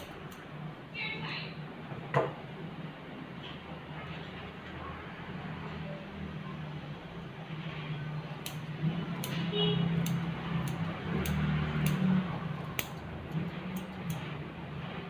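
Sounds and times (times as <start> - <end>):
scissors snipping hair: 0.0 - 0.5, 8.4 - 14.3.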